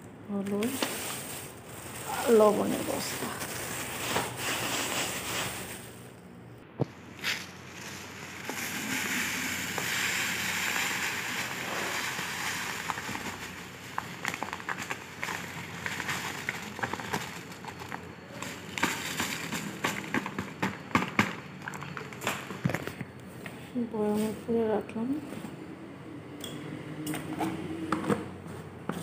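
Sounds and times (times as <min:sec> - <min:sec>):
plastic bag crinkling: 0:00.3 - 0:06.2, 0:06.9 - 0:23.0
seeds pouring into a plastic jar: 0:07.2 - 0:19.8.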